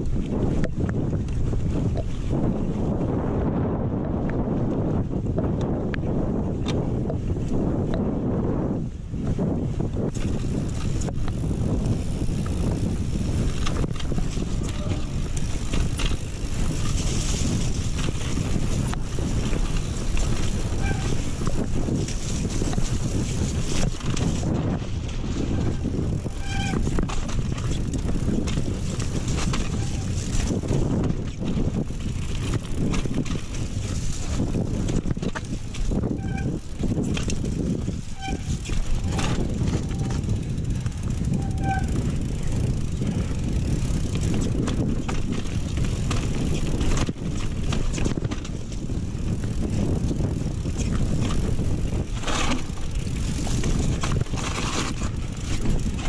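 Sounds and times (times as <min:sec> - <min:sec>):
bike rattling and knocking: 0:00.0 - 0:56.0
tyres rumbling on trail: 0:00.0 - 0:56.0
wind on microphone: 0:00.0 - 0:56.0
short squeaks: 0:13.6 - 0:16.0, 0:20.6 - 0:21.5, 0:25.4 - 0:27.2, 0:29.5 - 0:30.3, 0:36.0 - 0:36.8, 0:38.1 - 0:40.3, 0:41.2 - 0:42.3.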